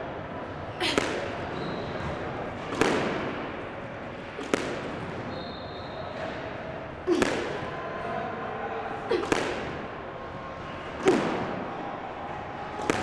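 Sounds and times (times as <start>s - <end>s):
squash ball cracks with echo: 0.8s - 5.3s, 6.1s - 8.0s, 9.0s - 13.0s.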